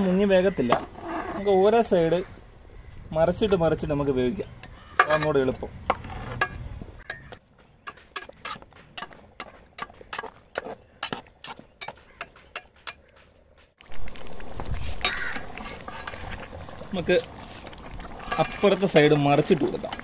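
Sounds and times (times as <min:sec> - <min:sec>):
simmering pot popping and crackling: 0:04.0 - 0:20.0
loud steady bubbling: 0:13.8 - 0:20.0.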